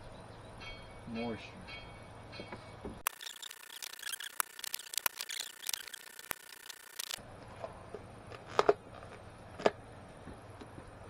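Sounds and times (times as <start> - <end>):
small irregular clicks: 3.0 - 7.2.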